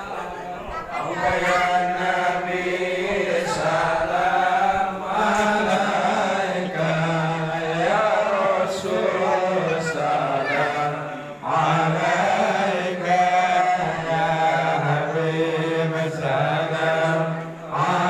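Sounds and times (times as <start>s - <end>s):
group chanting in unison: 0.0s - 18.0s.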